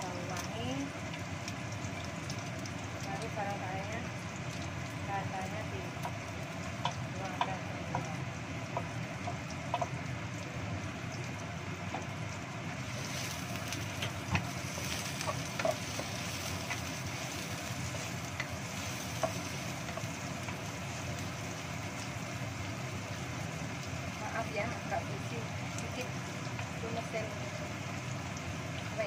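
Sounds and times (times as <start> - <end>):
shallots sizzling in hot oil: 0.0 - 29.0
wooden spatula scraping a wok: 12.9 - 18.1.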